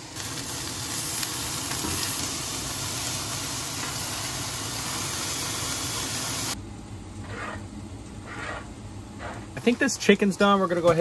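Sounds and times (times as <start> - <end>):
chicken sizzling in frying pan: 0.0 - 6.6.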